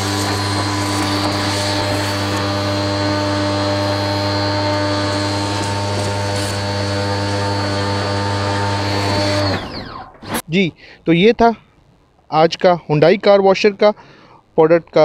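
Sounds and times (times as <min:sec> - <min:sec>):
pressure washer motor whining: 0:00.0 - 0:10.4.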